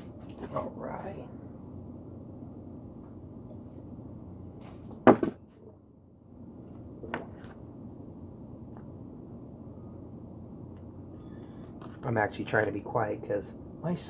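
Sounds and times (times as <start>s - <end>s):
steady low hum: 0.0s - 14.0s
kitchen clunks and knocks: 5.0s - 5.4s.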